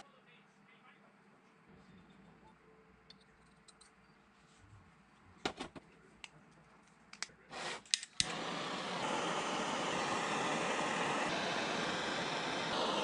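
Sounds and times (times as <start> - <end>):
gas torch igniter clicks: 7.2 - 13.0
gas torch burning hiss: 7.4 - 13.0.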